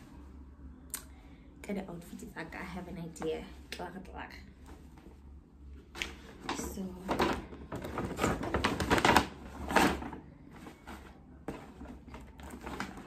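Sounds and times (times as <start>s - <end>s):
paper bag rustling and crinkling: 6.2s - 13.0s.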